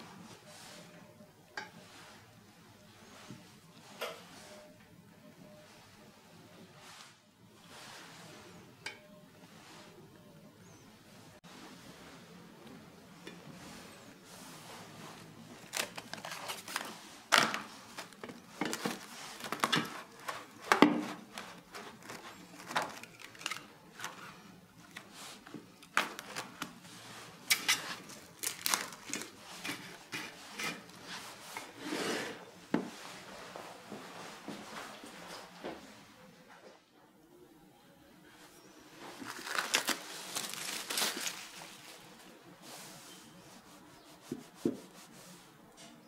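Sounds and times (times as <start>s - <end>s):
cling wrap crinkling and tearing: 15.6s - 24.3s, 27.5s - 30.0s, 39.0s - 42.2s.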